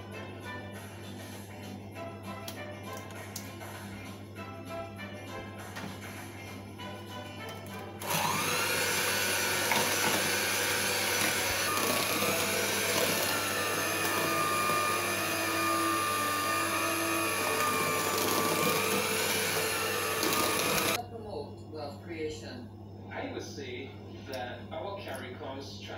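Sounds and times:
electric hand mixer whirring: 0:07.8 - 0:21.0.

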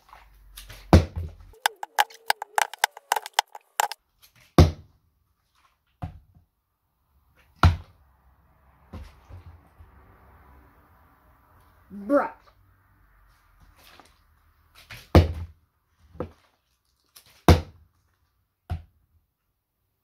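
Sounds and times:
plastic bottles clicking and crackling: 0:01.6 - 0:04.0
plastic bottles knocking on wood: 0:01.6 - 0:04.0.

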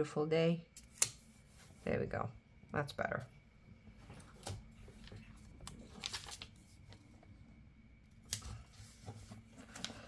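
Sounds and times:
paper sticker sheets rustling: 0:04.0 - 0:07.3, 0:08.1 - 0:10.0.

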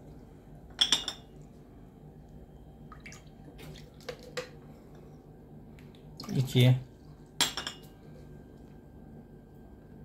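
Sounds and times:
coffee cup clinking on saucer: 0:00.8 - 0:01.3, 0:07.4 - 0:07.9
faint water drips: 0:02.3 - 0:05.0.

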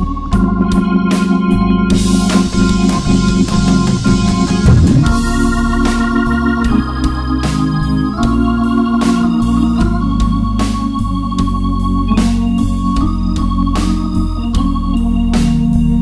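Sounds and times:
electronic organ playing chords: 0:00.0 - 0:16.0
pedal bass line: 0:00.4 - 0:16.0
percussive hits: 0:02.3 - 0:05.6.

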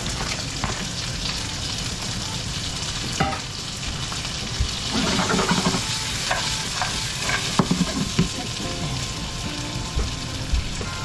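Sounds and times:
beans sizzling in a frying pan: 0:00.0 - 0:11.0
stirring clicks and knocks: 0:04.6 - 0:08.5.

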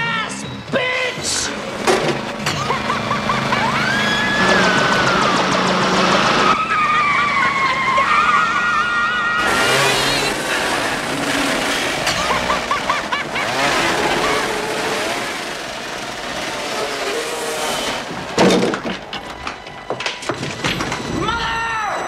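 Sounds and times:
riding lawn mower engine: 0:00.6 - 0:20.2
tyre skidding on dirt: 0:01.5 - 0:21.0
woman laughing: 0:02.4 - 0:05.3, 0:06.6 - 0:11.0, 0:12.0 - 0:15.3.

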